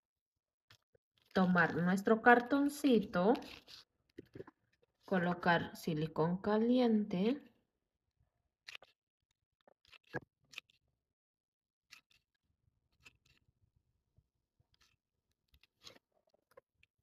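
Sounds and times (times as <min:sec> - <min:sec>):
glue gun clicks and rustles: 0:08.7 - 0:09.0, 0:11.9 - 0:13.4, 0:14.7 - 0:17.0.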